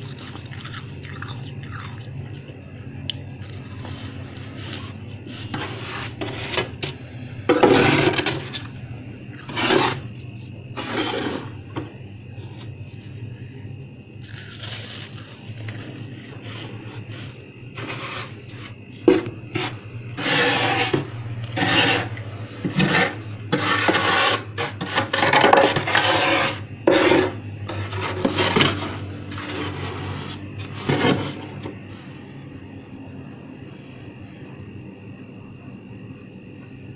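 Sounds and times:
spatula scraping frost: 3.4s - 8.7s, 9.3s - 11.6s, 16.2s - 31.7s.

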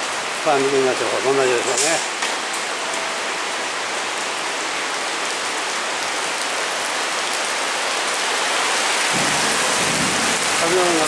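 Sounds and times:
heavy rain on paving stones: 0.0s - 11.0s.

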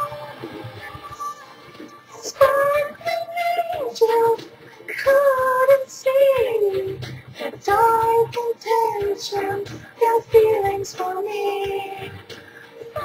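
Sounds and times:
backing track playing: 0.0s - 13.0s
woman singing slow song: 2.1s - 12.3s.

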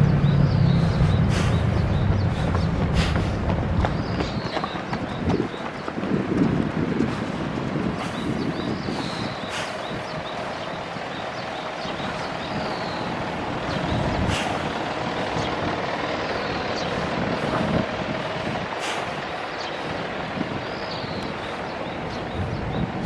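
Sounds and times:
road traffic noise: 0.0s - 23.0s.

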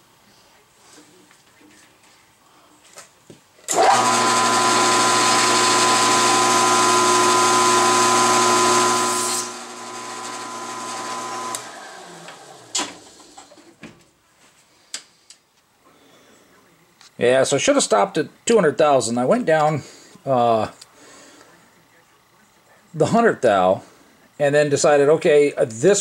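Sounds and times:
end mill cutting metal: 3.7s - 12.8s
milling machine motor whine: 3.7s - 13.3s.

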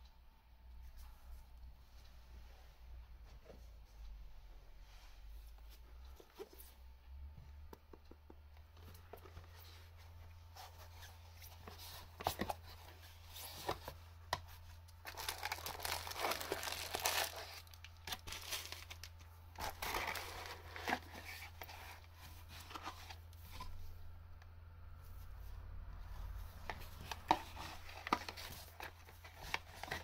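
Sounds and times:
plastic bags crinkling: 15.0s - 21.3s
paper rustling: 15.0s - 23.8s, 26.6s - 30.0s.

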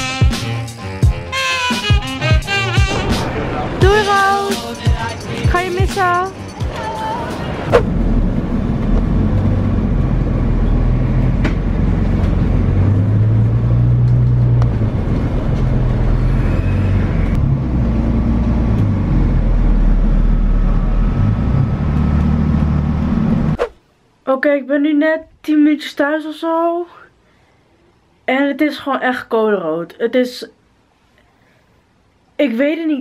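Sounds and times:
bus engine drone: 2.2s - 23.7s.

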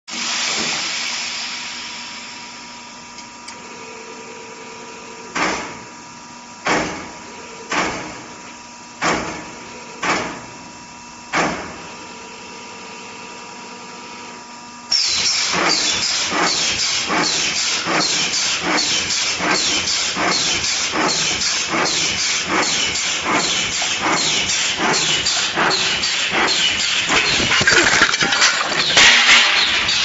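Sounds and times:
steady machine hum: 1.6s - 30.0s
crimping machine working: 14.9s - 30.0s.

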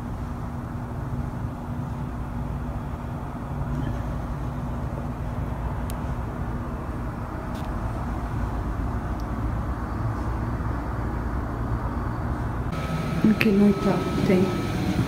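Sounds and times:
constant hum: 0.0s - 15.0s
distant city traffic rumble: 0.0s - 15.0s.

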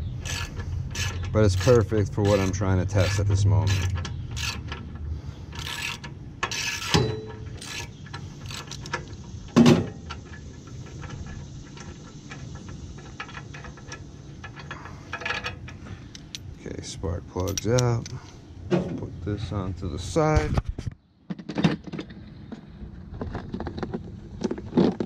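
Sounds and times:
hand ratchet clicking: 0.2s - 4.8s, 5.5s - 7.0s, 7.6s - 9.2s.

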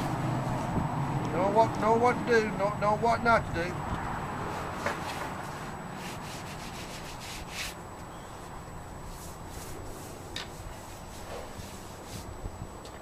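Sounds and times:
sponge scrubbing stone: 4.6s - 7.8s.

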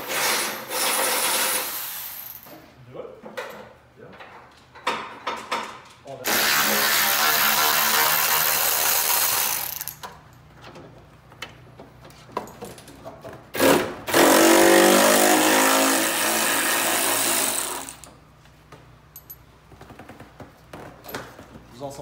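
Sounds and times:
power ratchet running: 6.3s - 10.0s, 13.6s - 18.1s.

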